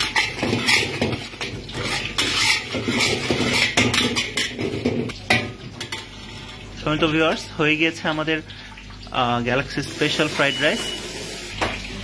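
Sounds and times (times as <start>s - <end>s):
metal spatula scraping a wok: 0.0s - 5.2s.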